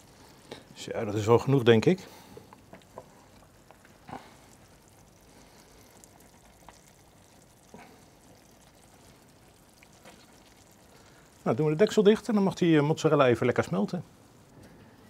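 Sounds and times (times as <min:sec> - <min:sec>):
chicken sizzling in a pan: 0:01.6 - 0:12.9
small pops: 0:02.3 - 0:11.2.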